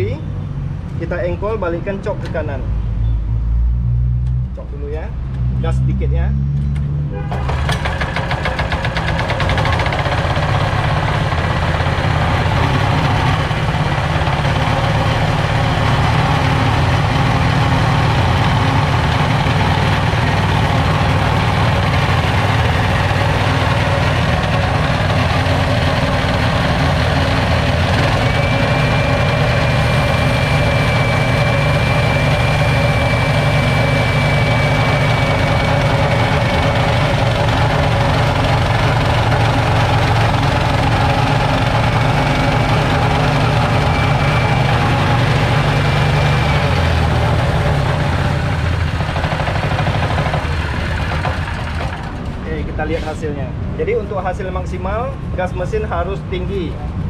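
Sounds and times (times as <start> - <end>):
high whine: 4.4 - 57.0
petrol engine running: 6.6 - 53.2.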